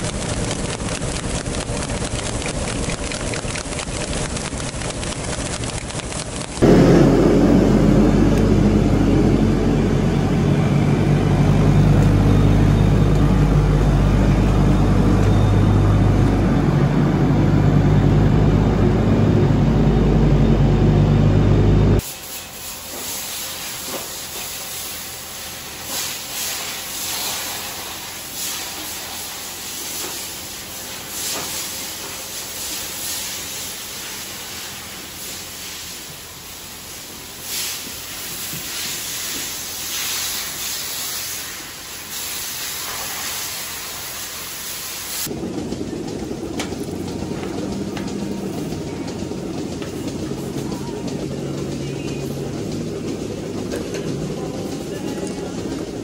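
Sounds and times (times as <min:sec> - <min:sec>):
diesel engine running: 0:00.0 - 0:56.0
spraying water hiss: 0:22.0 - 0:45.3.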